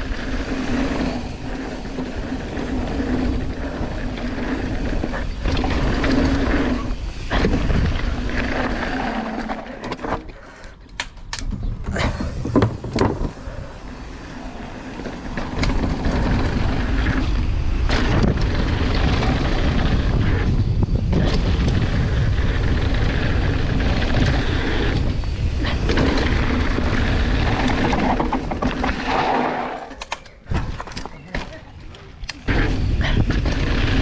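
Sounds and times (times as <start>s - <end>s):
wind buffeting microphone: 0.0s - 9.3s, 11.4s - 34.0s
tyres rumbling on dirt: 0.0s - 10.3s, 11.6s - 34.0s
bike knocks and rattles: 11.0s - 34.0s.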